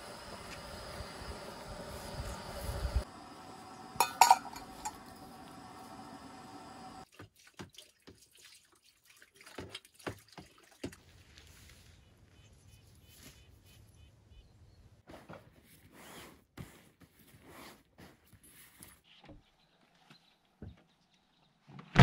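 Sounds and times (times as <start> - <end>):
dishes knocking and clattering: 4.0 - 5.0
water splashing in basin: 7.0 - 11.0.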